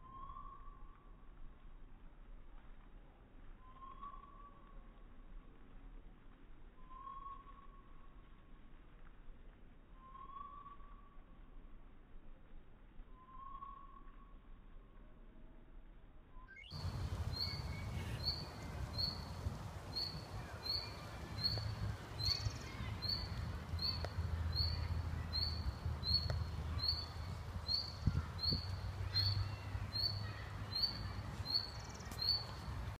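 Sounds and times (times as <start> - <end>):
faint bird chirps: 0.0 - 1.0, 3.6 - 4.8, 6.8 - 8.1, 10.0 - 11.3, 13.1 - 14.4
wind rumble on microphone: 16.8 - 33.0.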